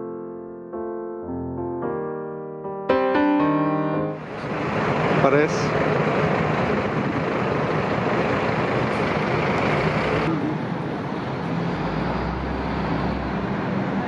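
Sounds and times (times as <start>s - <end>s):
cars passing: 4.2s - 14.0s.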